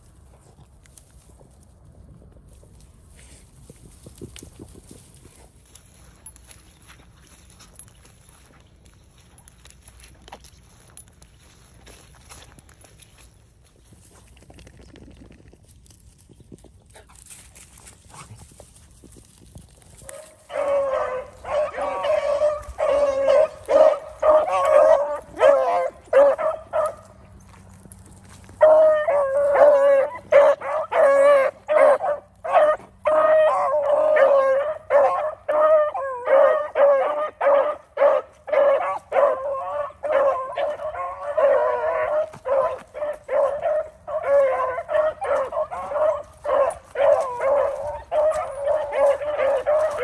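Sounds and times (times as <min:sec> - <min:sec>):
hounds baying: 0:20.0 - 0:50.0.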